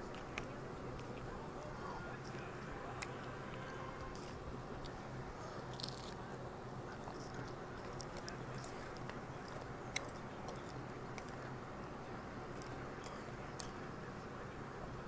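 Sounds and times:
faint low hum: 0.0s - 15.0s
person chewing food: 7.0s - 11.5s.

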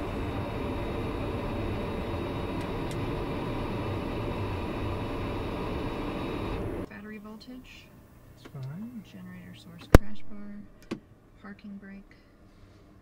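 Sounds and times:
turboprop engine running: 0.0s - 6.9s.

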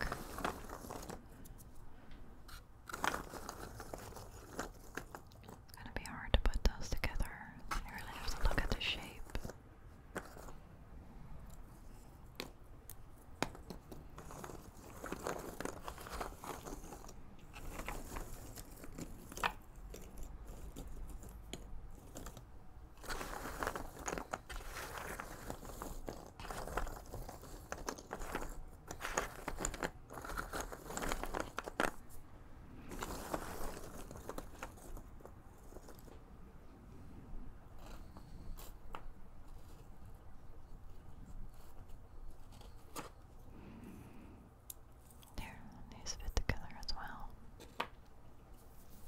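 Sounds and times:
puzzle pieces rustling in box: 0.0s - 1.8s, 2.5s - 5.7s, 8.0s - 10.6s, 13.5s - 32.2s, 32.8s - 36.1s
puzzle pieces clicking: 23.0s - 32.0s.

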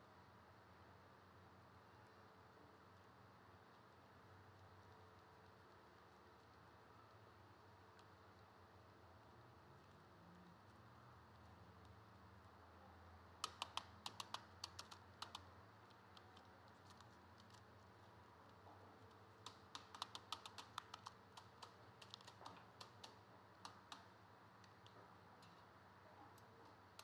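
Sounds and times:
light clicks and taps of wire: 7.6s - 8.5s, 13.2s - 27.0s.

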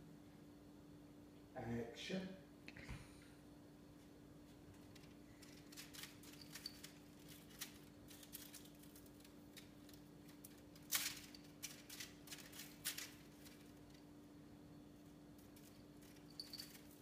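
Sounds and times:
kitten pawing scratches and clicks: 4.5s - 14.1s.

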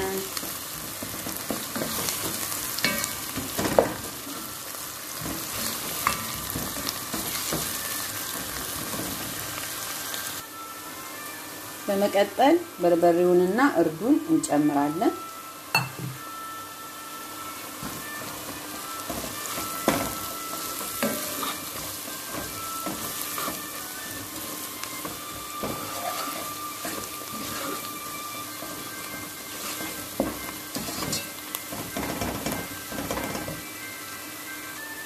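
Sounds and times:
onions sizzling in oil: 0.0s - 35.0s
wooden spoon stirring and scraping: 19.1s - 33.6s.

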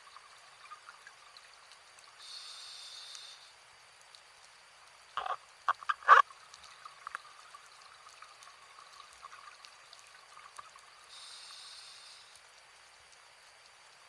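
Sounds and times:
low underwater hiss: 0.0s - 14.0s
underwater crackling clicks: 5.1s - 10.8s
diver breathing through regulator: 11.1s - 12.4s.

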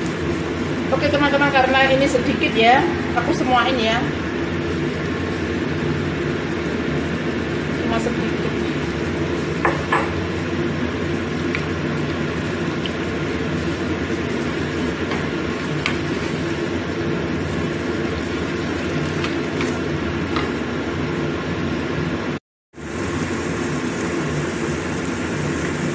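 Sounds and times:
wok simmering: 0.0s - 22.2s, 22.8s - 25.9s
wooden spatula tapping pan: 15.0s - 16.3s.

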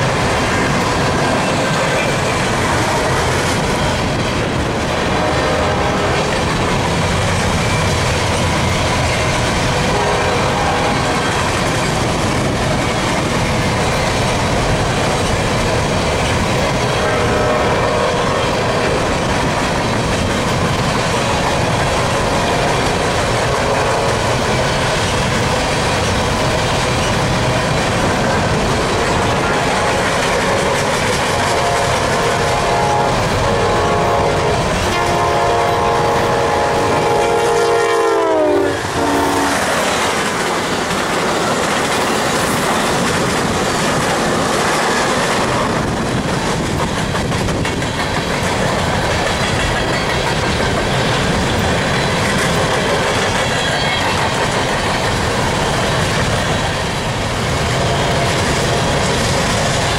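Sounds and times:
train cars rolling on track: 0.0s - 59.9s
locomotive air horn: 5.1s - 6.4s, 9.8s - 11.2s, 17.0s - 19.0s, 23.4s - 24.4s, 29.0s - 39.8s.

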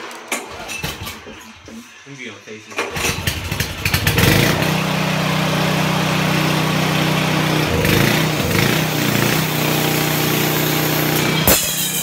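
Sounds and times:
small sawmill engine running: 3.0s - 11.6s.

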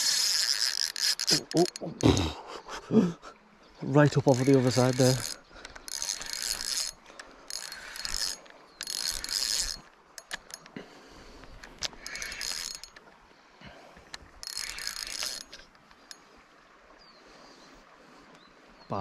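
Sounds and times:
fishing reel whirring: 0.0s - 2.3s, 3.9s - 13.0s, 14.1s - 16.4s
reel clicks: 0.0s - 2.3s, 3.8s - 13.2s, 13.9s - 16.4s.

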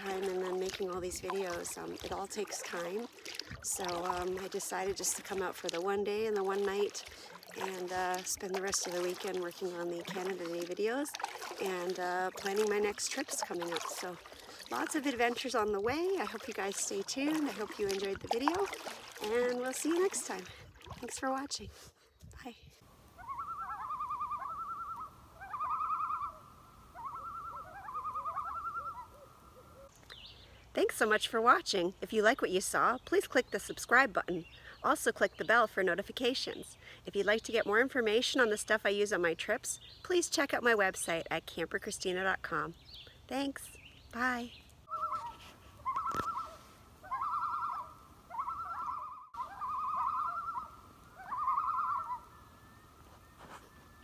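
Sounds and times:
loons tremolo calls: 23.1s - 29.9s, 44.4s - 54.0s
loon tremolo call: 44.9s - 53.0s.

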